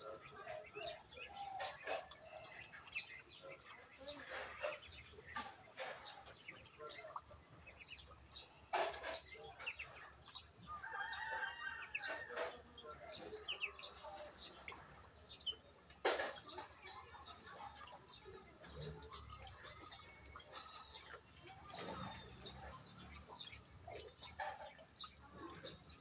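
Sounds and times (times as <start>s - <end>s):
small birds chirping: 0.0s - 26.0s
rooster crowing: 10.7s - 12.3s.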